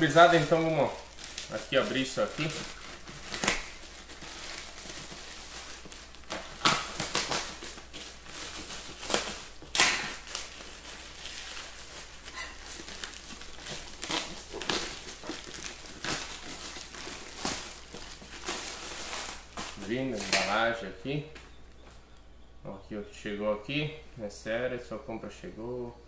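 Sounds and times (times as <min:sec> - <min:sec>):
knife slitting plastic bag: 0:00.0 - 0:20.6
plastic crinkling and rustling: 0:00.0 - 0:22.1.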